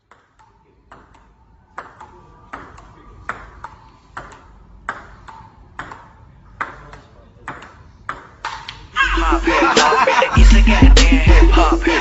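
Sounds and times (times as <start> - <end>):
table tennis ball rally: 0.0 - 9.0.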